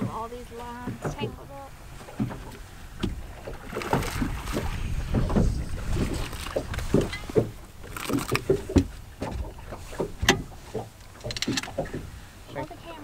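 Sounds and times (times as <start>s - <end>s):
knocks and thumps on boat deck: 0.0s - 13.0s
wind rumble on microphone: 0.0s - 13.0s.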